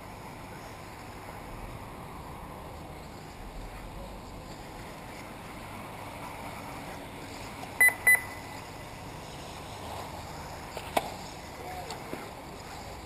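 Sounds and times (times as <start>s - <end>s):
steady background hiss: 0.0s - 13.0s
short high electronic beeps: 7.8s - 8.6s.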